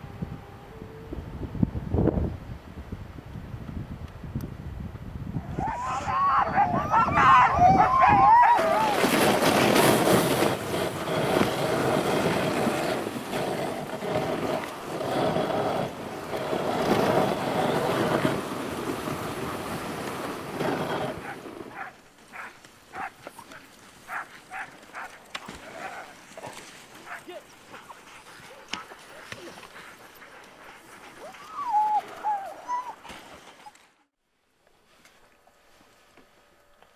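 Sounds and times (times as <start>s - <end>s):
sled runners over snow: 4.9s - 34.1s
dogs yelping: 5.7s - 9.0s, 21.2s - 23.2s, 24.1s - 26.2s, 29.8s - 33.1s.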